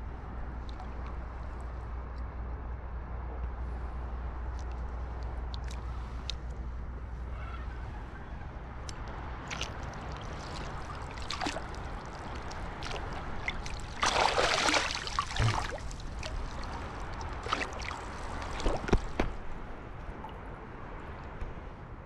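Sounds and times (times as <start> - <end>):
water splashing: 9.4 - 19.5
fish thrashing in a net: 9.5 - 19.2.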